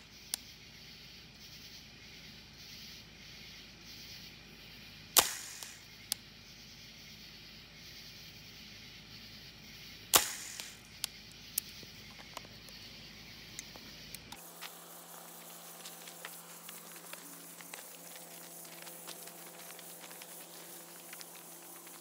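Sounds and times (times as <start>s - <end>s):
airsoft rifle shots: 5.2s - 5.9s, 10.1s - 10.9s.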